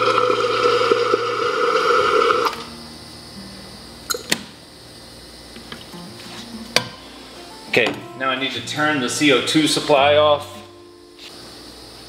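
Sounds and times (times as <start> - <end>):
beer rushing from a faucet: 0.0 - 2.7.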